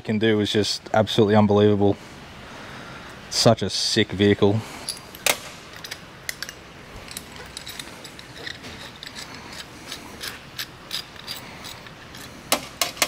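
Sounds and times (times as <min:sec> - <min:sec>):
small parts clicking on metal: 0:04.9 - 0:13.0.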